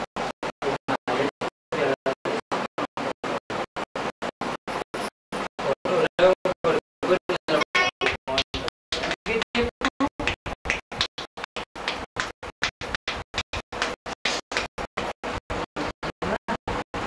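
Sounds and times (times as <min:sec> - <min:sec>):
faint voices: 0:05.6 - 0:08.4.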